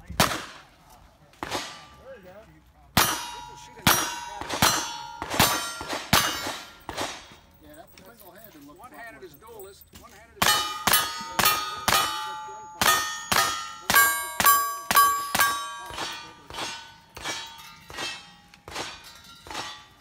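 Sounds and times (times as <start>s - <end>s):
gunshots: 0.2s - 0.7s, 1.4s - 1.9s, 3.0s - 7.4s, 10.4s - 19.9s
steel plate target clanging: 3.0s - 7.4s, 10.4s - 20.0s.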